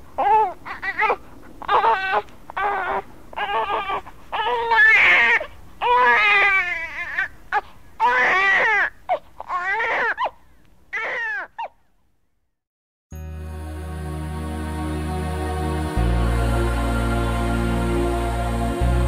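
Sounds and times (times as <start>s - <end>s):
infant crying: 0.2s - 11.8s.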